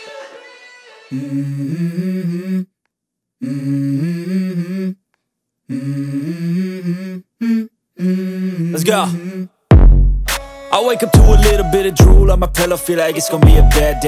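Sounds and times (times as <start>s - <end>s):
background music: 9.8s - 14.0s.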